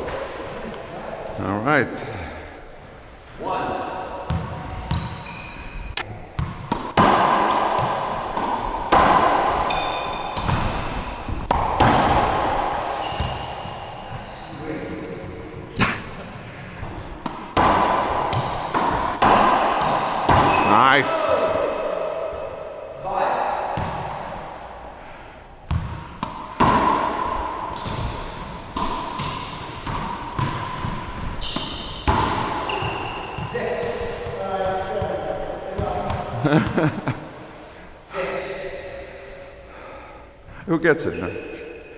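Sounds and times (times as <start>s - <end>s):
racquetball hits echoing: 0.0s - 0.8s, 3.4s - 37.4s
sneaker squeaks on hardwood: 4.7s - 6.0s, 9.7s - 11.4s, 13.0s - 14.2s, 30.8s - 33.6s
racquetball smacks in court: 6.4s - 9.8s, 10.4s - 12.6s, 17.2s - 20.7s, 25.7s - 33.0s.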